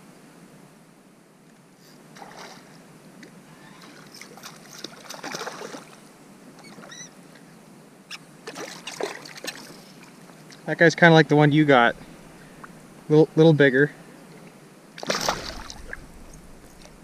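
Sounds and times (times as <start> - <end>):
fish splashing at water surface: 4.0 - 6.0, 8.4 - 10.2, 15.0 - 17.0.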